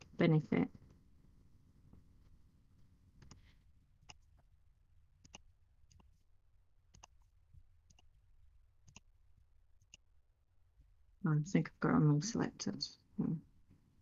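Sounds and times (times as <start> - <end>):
computer mouse clicks: 5.2 - 6.1, 6.9 - 7.3, 7.9 - 8.1, 8.9 - 9.1.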